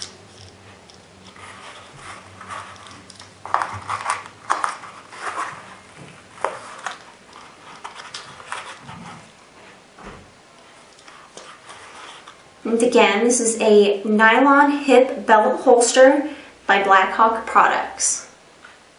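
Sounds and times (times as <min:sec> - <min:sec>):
nylon fabric rustling: 0:00.0 - 0:09.8.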